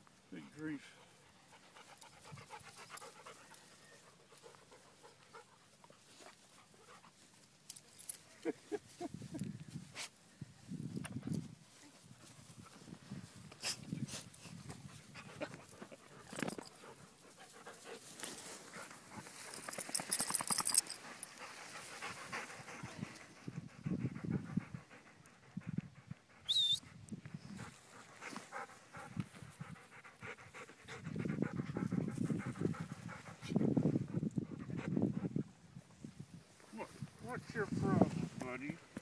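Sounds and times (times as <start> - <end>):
dogs panting: 0.7 - 8.5, 11.1 - 35.8
rustling through grass: 17.0 - 23.4.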